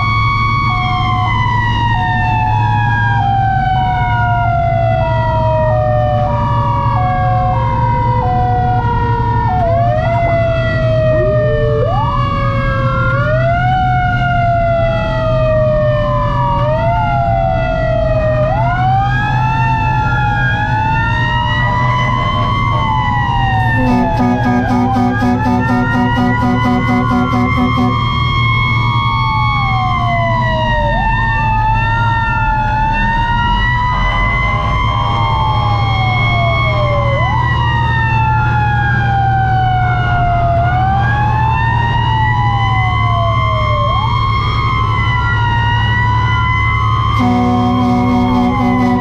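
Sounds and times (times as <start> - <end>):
fire engine sirens wailing: 0.0 - 49.0
two-tone hi-lo siren: 0.0 - 49.0
low engine drone: 20.2 - 30.6, 46.9 - 49.0.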